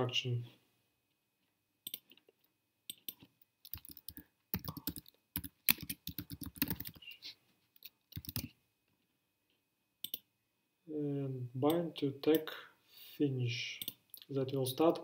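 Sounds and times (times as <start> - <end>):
keyboard typing: 1.8 - 2.2, 2.9 - 7.2, 7.9 - 8.5, 10.0 - 10.2.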